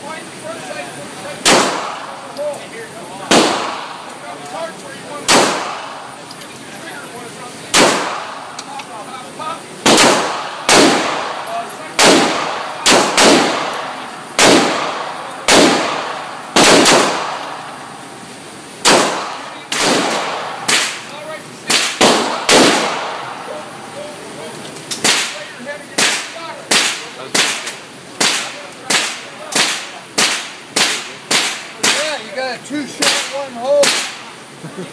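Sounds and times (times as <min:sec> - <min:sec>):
pistol shots echoing indoors: 0:03.3 - 0:04.1, 0:07.7 - 0:08.4, 0:09.8 - 0:17.8, 0:18.8 - 0:21.0, 0:21.7 - 0:23.4.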